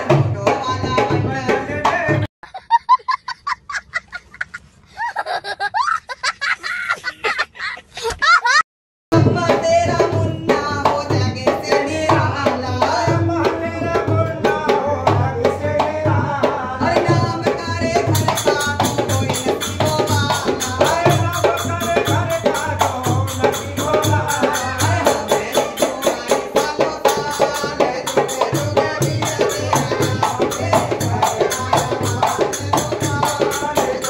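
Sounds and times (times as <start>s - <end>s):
dholak drum beat: 0.0s - 2.3s, 9.1s - 34.0s
small child laughing: 2.4s - 8.6s
person singing: 16.3s - 34.0s.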